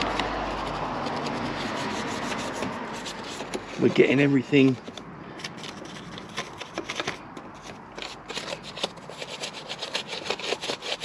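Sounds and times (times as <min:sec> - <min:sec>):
brush scrubbing: 0:00.0 - 0:04.8, 0:08.0 - 0:11.0.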